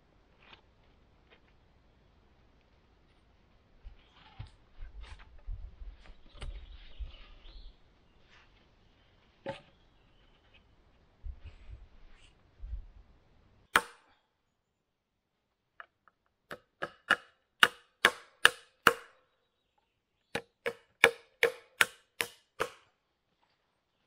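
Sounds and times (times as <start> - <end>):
hammer striking nails into wood: 13.7 - 14.0, 16.5 - 19.2, 20.3 - 22.8.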